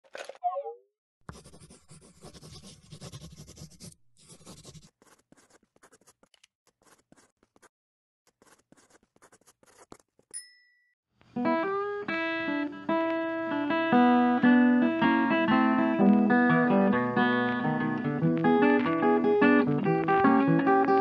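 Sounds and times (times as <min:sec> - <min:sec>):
pen scratching on paper: 0:01.3 - 0:07.7, 0:08.3 - 0:10.3
high ding: 0:10.4 - 0:11.0.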